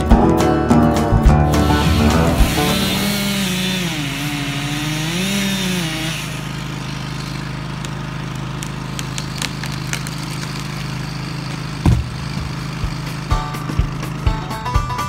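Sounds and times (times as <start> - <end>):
chainsaw revving: 0.9 - 14.4
tree trunk hitting ground: 1.5 - 13.2
wood cracking: 1.5 - 13.3.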